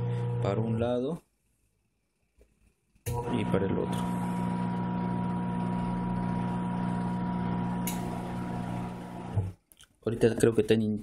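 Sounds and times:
motor humming: 3.1s - 9.5s.

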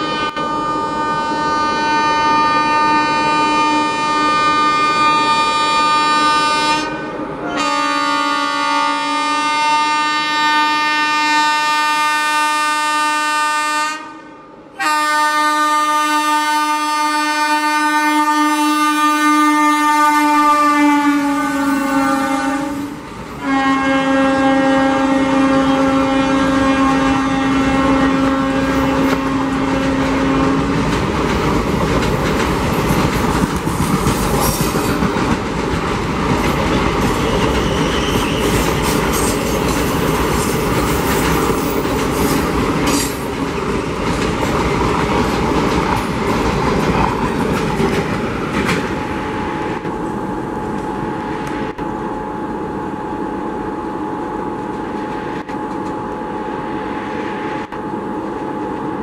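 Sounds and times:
train horn: 0.0s - 30.7s
train clanks: 27.7s - 51.9s
train wheels clattering on rails: 28.0s - 50.1s.

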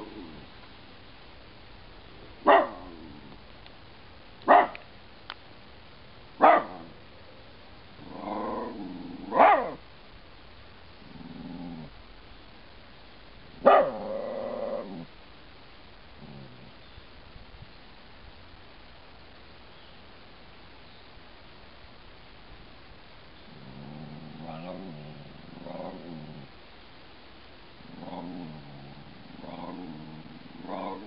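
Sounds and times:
dog growling: 0.0s - 0.5s, 8.0s - 9.8s, 11.0s - 12.0s, 13.6s - 15.1s, 16.2s - 16.8s, 23.5s - 26.5s, 27.8s - 31.0s
dog barking sharply: 2.5s - 2.8s, 4.5s - 4.8s, 6.4s - 6.8s, 9.4s - 9.8s.

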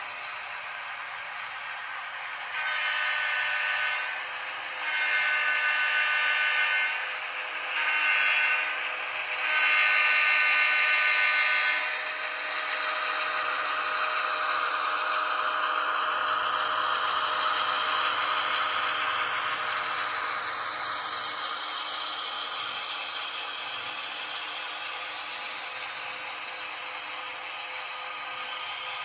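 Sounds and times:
model train rolling on track: 0.0s - 29.0s
model train horn blasts: 2.5s - 4.1s, 4.8s - 7.0s, 7.8s - 8.7s, 9.5s - 11.9s.

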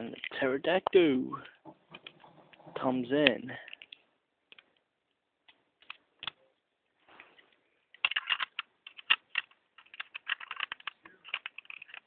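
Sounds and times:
plastic toy parts clicking: 5.8s - 6.4s, 7.9s - 12.0s.

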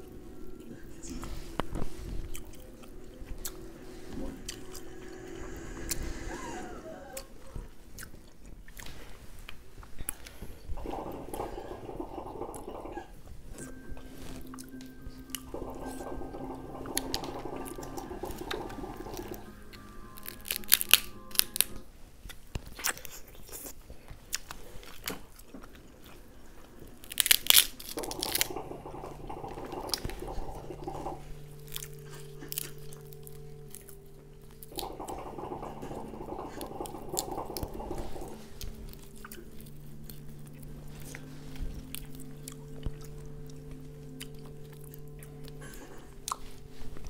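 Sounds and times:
background music: 0.0s - 7.9s, 10.7s - 22.2s, 26.2s - 47.0s
chewing: 0.0s - 47.0s
crab shells cracking: 27.0s - 28.6s.

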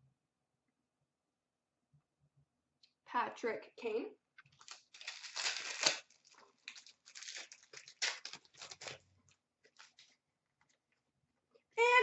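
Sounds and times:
cards and packaging rustling: 4.4s - 10.2s.

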